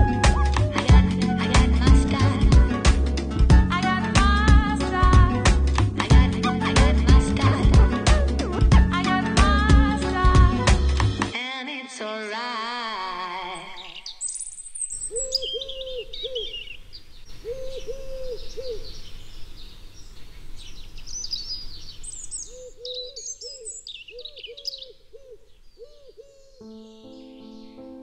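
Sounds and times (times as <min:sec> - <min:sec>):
songbirds chirping: 0:13.2 - 0:28.0
low hooting bird call: 0:13.7 - 0:27.0.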